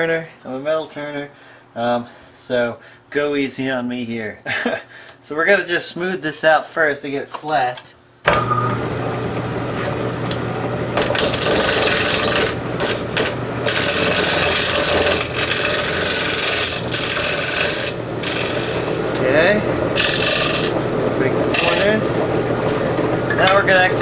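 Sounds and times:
wood lathe motor hum: 8.3s - 24.0s
turning tool scraping wood: 11.0s - 24.0s.

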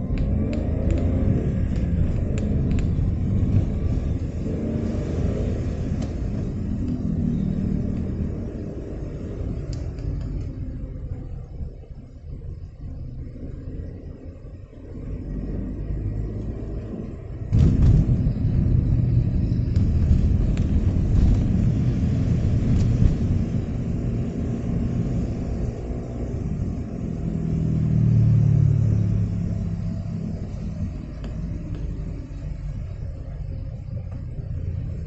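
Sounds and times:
car rumbling in traffic: 0.0s - 35.0s.

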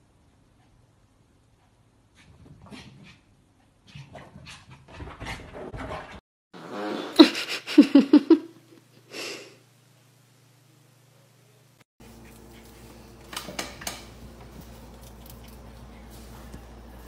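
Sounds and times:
person farting: 6.6s - 7.7s.

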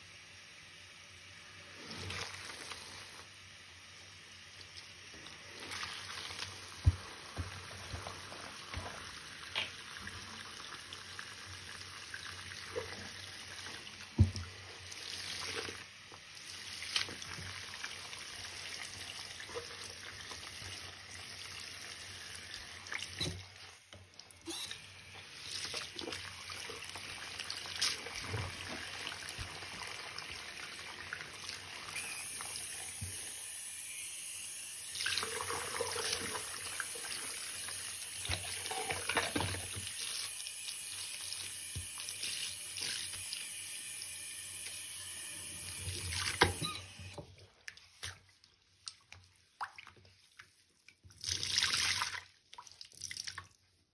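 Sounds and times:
tap water running into sink: 5.1s - 14.6s, 34.9s - 43.5s.

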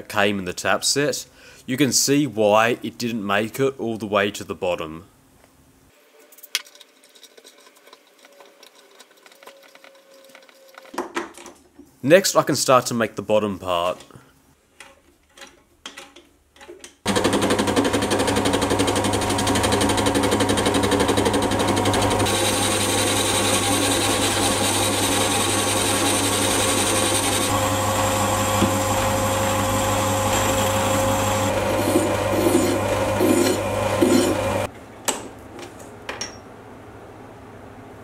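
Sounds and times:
lathe motor hum: 17.1s - 34.7s
tool cutting spinning steel: 17.1s - 34.7s
hand file stroking metal: 31.8s - 34.6s.

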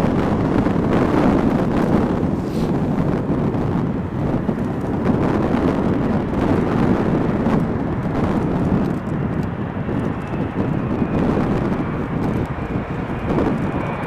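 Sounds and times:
jet airliner engines rushing: 0.0s - 14.0s.

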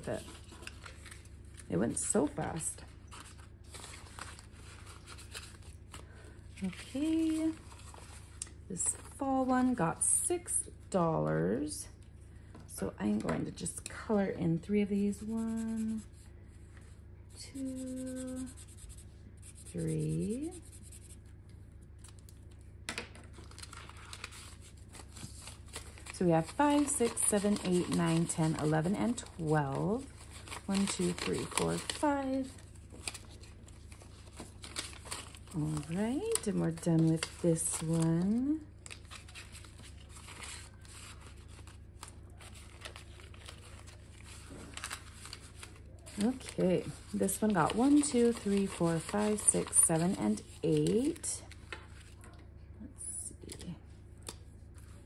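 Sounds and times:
paper and plastic sleeve rustling: 0.0s - 9.2s, 17.5s - 21.3s, 23.2s - 52.4s
plastic envelope crinkling: 0.0s - 9.2s, 21.8s - 52.2s
marker pen scratching on paper: 17.6s - 21.2s.

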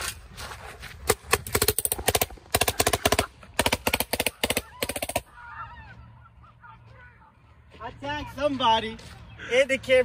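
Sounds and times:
paintball gun rapid firing: 1.1s - 5.3s.

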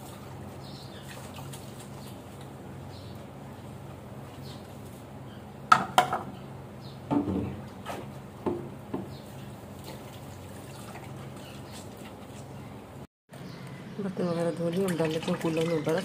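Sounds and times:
dishes knocking: 5.7s - 6.3s, 7.1s - 7.6s.

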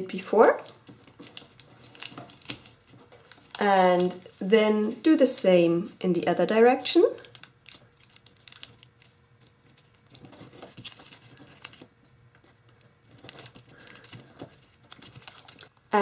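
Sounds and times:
foil paper crinkling: 0.6s - 4.5s, 7.2s - 15.8s.

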